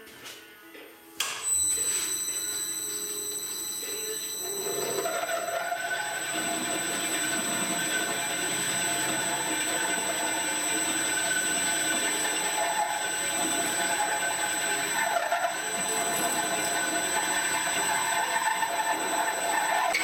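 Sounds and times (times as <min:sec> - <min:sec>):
lathe drilling into metal: 0:01.5 - 0:20.0.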